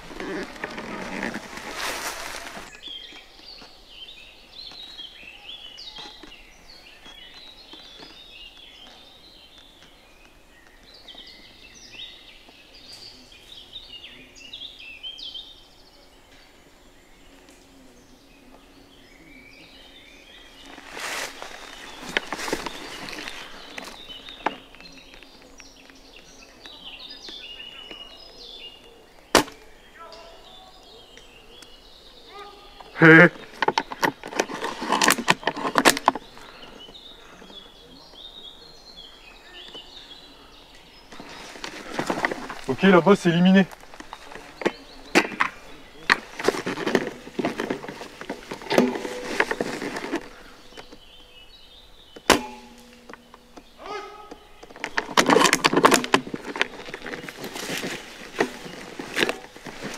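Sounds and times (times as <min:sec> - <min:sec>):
footsteps through leafy undergrowth: 0:00.0 - 0:03.8, 0:19.8 - 0:27.4, 0:40.9 - 0:51.2, 0:52.3 - 0:59.9
birds chirping: 0:00.0 - 0:59.9
airsoft rifle shot crack: 0:52.3 - 0:52.8.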